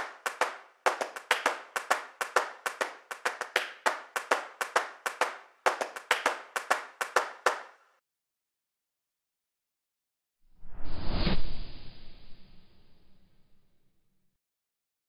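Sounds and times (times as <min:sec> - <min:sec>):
sharp dry hand claps: 0:00.0 - 0:07.8.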